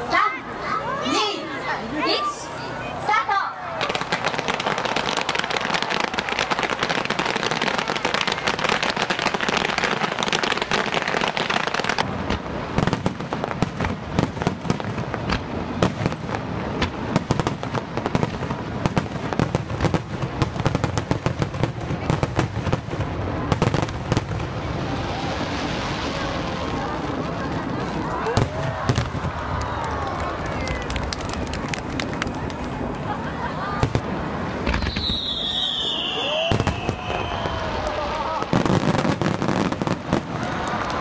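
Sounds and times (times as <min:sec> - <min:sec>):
fireworks crackling and hissing: 0:00.0 - 0:41.0
firework shells bursting: 0:33.9 - 0:41.0.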